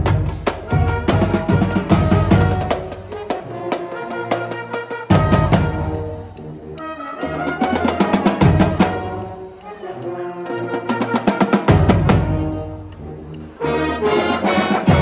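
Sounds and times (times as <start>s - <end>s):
marching drumline: 0.0s - 6.3s, 7.1s - 9.4s, 10.5s - 12.9s, 13.6s - 15.0s
brass holding chords: 0.7s - 15.0s.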